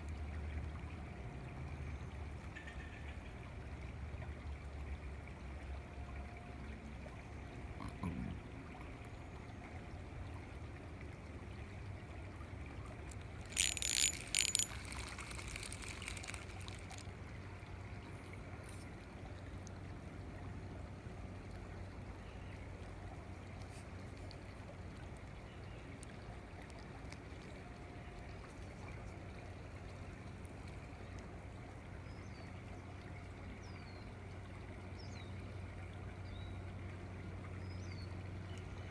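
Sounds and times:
fish splashing at water surface: 13.1 - 17.4.

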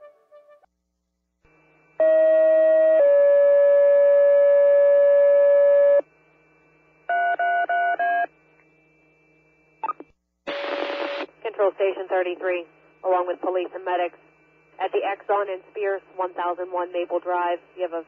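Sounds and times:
two-tone radio paging tones: 9.8 - 12.3.

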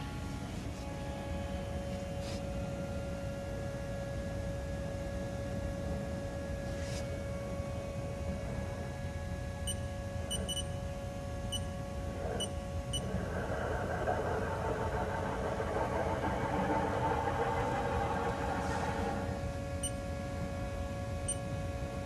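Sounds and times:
lathe machine whine: 13.0 - 19.8.

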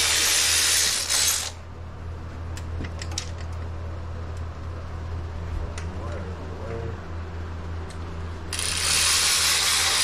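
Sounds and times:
cordless drill running: 0.0 - 1.6, 8.5 - 10.0.

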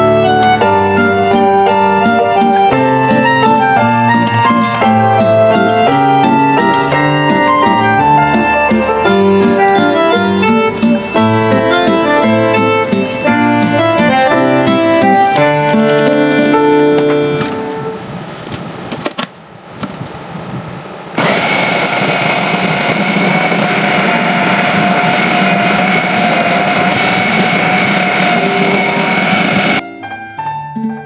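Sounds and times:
electric food chopper whining: 0.0 - 17.4, 21.2 - 29.8
instrumental background music: 0.0 - 18.0, 23.5 - 31.0.

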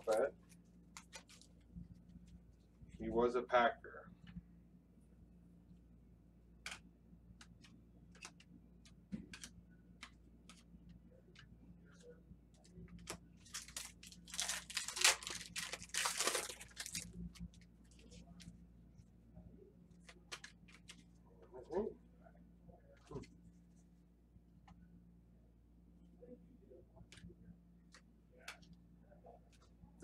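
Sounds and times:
foil wrapper tearing: 13.4 - 17.2.

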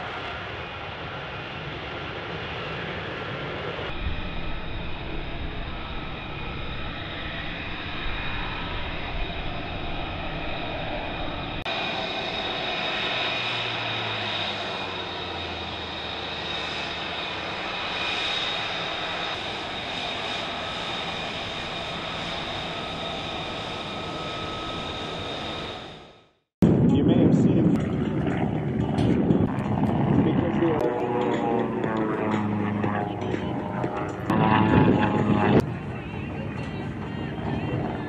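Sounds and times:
jet engine whine: 0.0 - 38.0.

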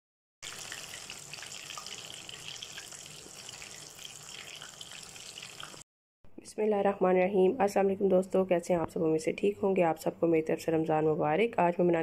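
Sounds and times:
food deep-frying in oil: 0.4 - 5.8.

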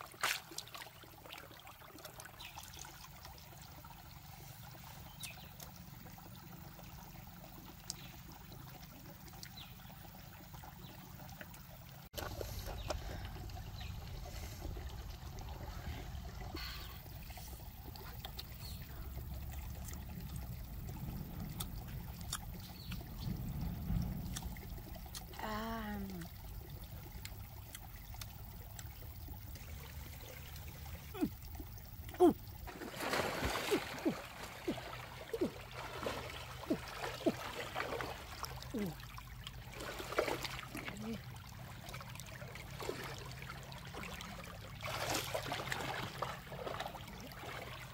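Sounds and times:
stream water trickling: 0.0 - 47.9
water splashing from wading: 0.0 - 47.9
wavering vocal sound: 31.1 - 31.3, 32.1 - 32.4.

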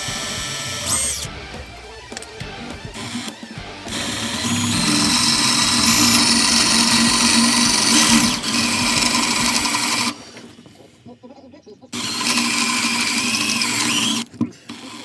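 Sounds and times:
power drill boring into steel: 0.0 - 1.3, 2.8 - 10.3, 12.0 - 15.0.

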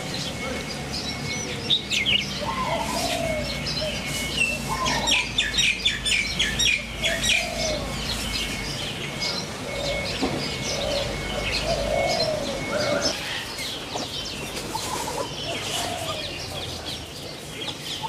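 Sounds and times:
birds chirping: 0.0 - 18.0
dove-like coos: 2.3 - 13.6, 14.6 - 16.6.

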